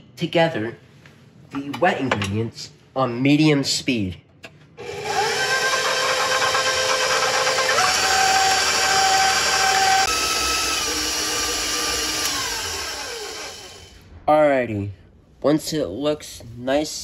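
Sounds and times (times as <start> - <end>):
stand mixer motor whine: 4.8 - 14.0
beater churning batter in steel bowl: 4.9 - 13.8.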